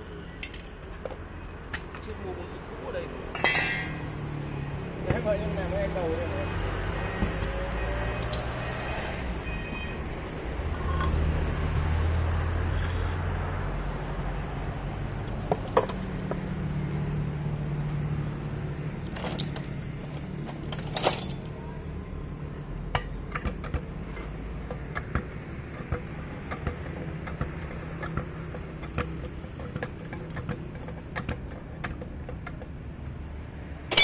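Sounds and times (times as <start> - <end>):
metal clinks and knocks: 3.3 - 4.1, 19.0 - 21.6.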